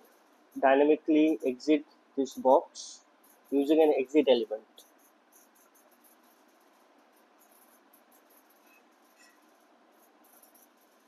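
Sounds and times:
microphone hiss: 0.0 - 5.4.

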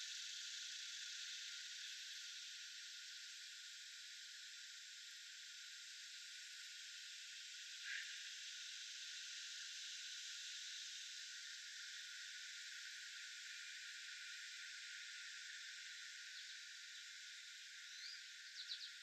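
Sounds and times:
faint outdoor hiss: 0.0 - 19.0
faint chirp: 17.9 - 19.0.

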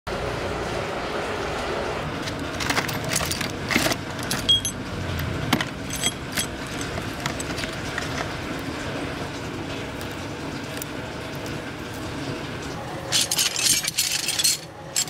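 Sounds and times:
roller chain rattling: 2.6 - 4.8, 5.5 - 8.5, 12.8 - 15.0
steel nuts and bolts clinking: 2.6 - 4.9, 5.5 - 8.4, 13.0 - 15.0.

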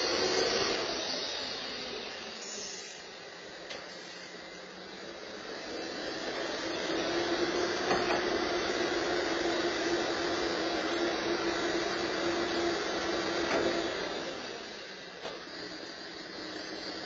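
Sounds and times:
truck engine hum: 0.0 - 5.1.

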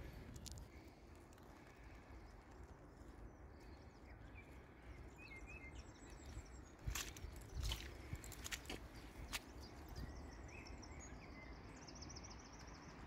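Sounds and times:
low steady rumble: 0.0 - 5.1.

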